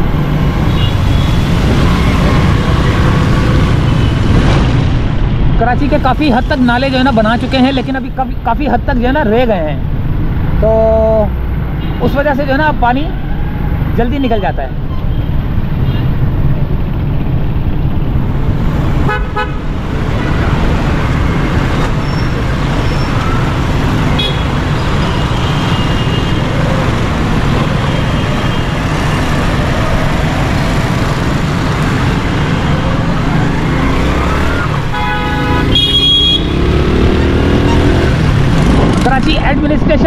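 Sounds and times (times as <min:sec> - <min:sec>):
traffic noise: 0:00.0 - 0:40.0
vehicle horn toots: 0:24.1 - 0:24.6, 0:34.9 - 0:36.6.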